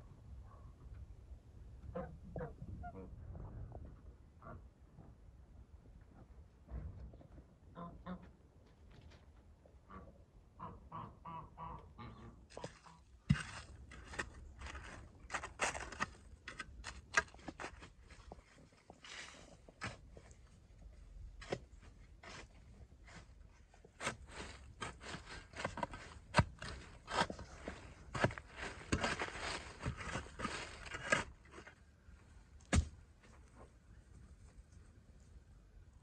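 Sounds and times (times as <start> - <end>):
shovel striking soil: 12.6 - 18.3, 21.4 - 23.3, 24.0 - 31.8, 32.6 - 33.0
earth scraping and crunching: 12.6 - 33.7.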